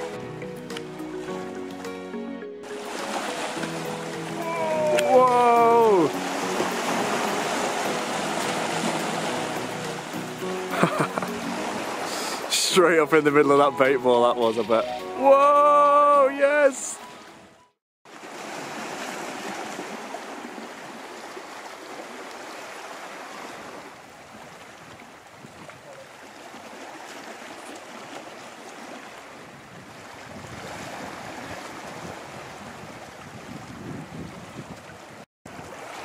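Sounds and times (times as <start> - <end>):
waves washing on rocks: 2.7 - 13.0, 15.9 - 17.0, 18.1 - 36.0
wind on microphone: 24.3 - 26.0, 29.3 - 35.6.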